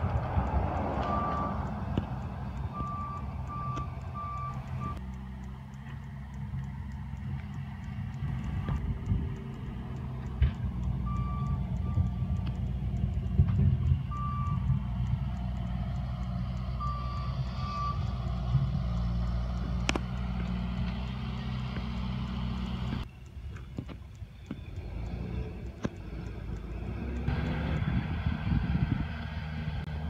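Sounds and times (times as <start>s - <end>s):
heavy vehicle engine rumbling: 0.0s - 30.0s
reversing alarm beeping: 0.7s - 1.8s, 2.6s - 5.0s, 10.9s - 12.4s, 14.0s - 15.2s, 16.6s - 18.1s.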